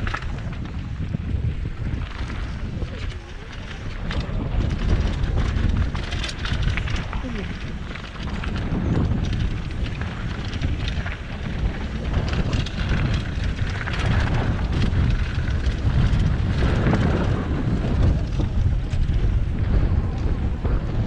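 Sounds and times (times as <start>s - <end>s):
bike knocks and rattles: 0.0s - 21.0s
tyres over dirt and stones: 0.0s - 21.0s
wind buffeting microphone: 0.0s - 21.0s.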